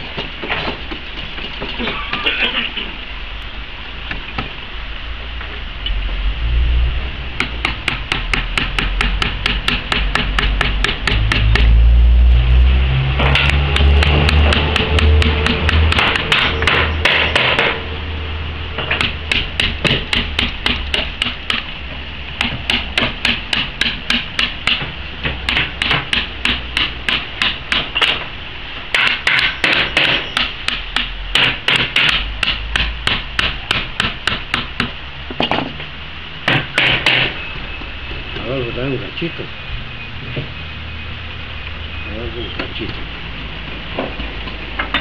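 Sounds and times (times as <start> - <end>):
hammer tapping chisel into wood: 7.4 - 11.8, 13.3 - 17.8, 22.4 - 28.2, 29.0 - 35.0.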